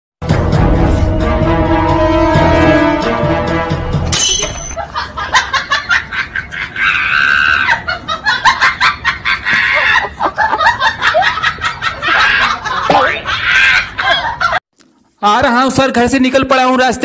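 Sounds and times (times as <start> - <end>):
high-pitched laughter: 4.8 - 14.6.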